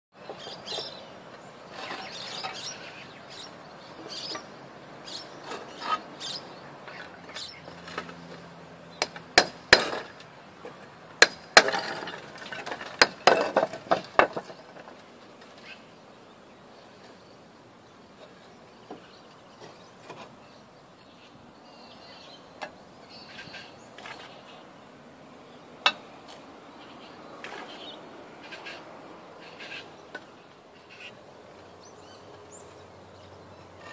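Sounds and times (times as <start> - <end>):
tiles and mortar knocking and scraping: 11.6 - 15.0.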